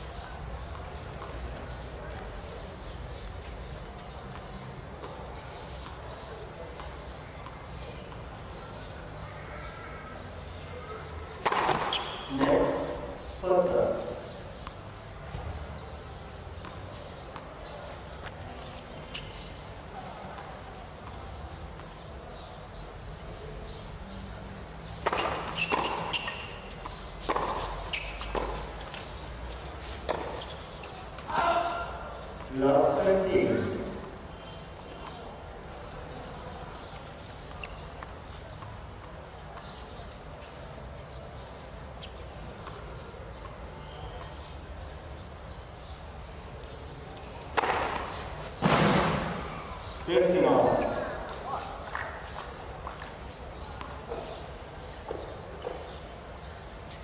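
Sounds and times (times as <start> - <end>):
tennis ball bouncing: 11.4 - 12.9, 24.9 - 31.3, 47.5 - 49.5
tennis ball struck by rackets: 11.4 - 12.9, 25.0 - 29.1, 30.0 - 30.5, 47.5 - 49.5.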